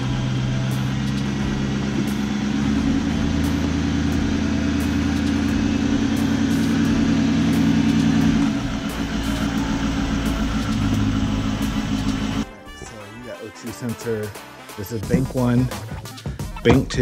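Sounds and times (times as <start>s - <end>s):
car engine idling: 0.0s - 12.4s, 15.1s - 15.8s.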